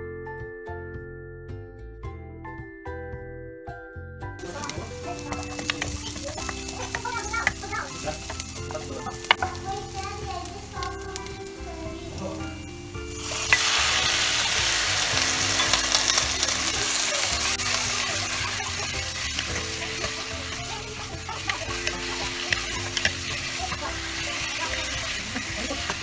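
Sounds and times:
wooden spoon scraping a pan: 4.4 - 12.4, 13.1 - 26.0
food sizzling in hot oil: 4.4 - 26.0.

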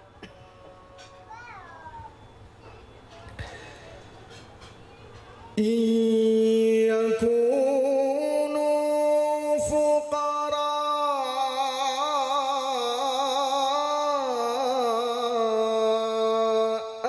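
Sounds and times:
man chanting into a microphone: 5.6 - 17.0.

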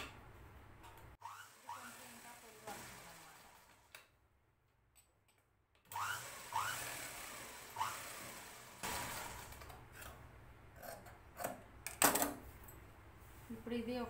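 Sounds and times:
sewing machine stitching: 1.2 - 4.0, 5.9 - 9.8.

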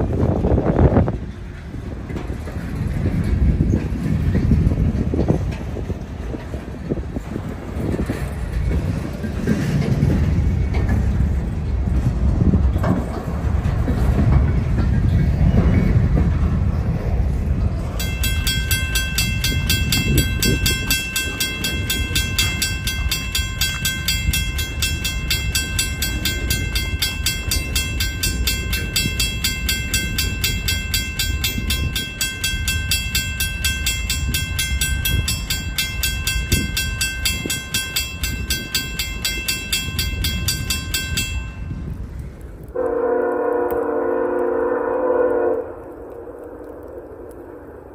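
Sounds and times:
freight train rumbling past: 0.0 - 47.9
railroad crossing bell ringing: 17.9 - 42.1.

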